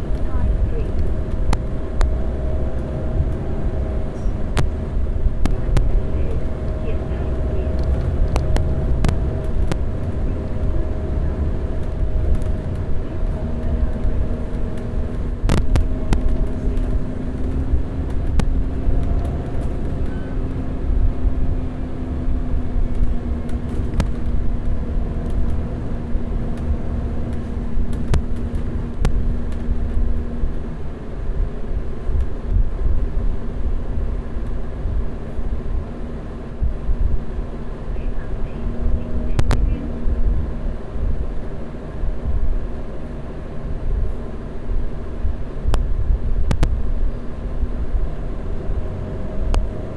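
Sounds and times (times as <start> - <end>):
rattles and clicks: 0.0 - 30.7
diesel bus engine rumbling: 0.0 - 49.9
steady whine: 0.0 - 49.9.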